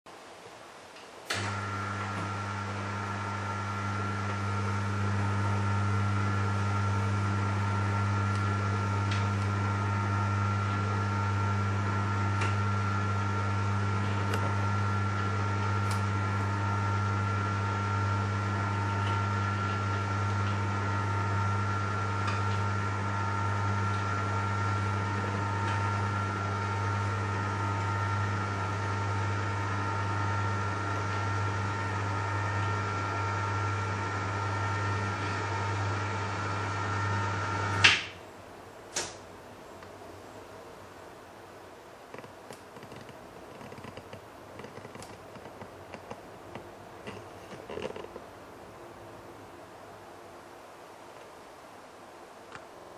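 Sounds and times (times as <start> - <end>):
electric motor humming: 1.3 - 38.1.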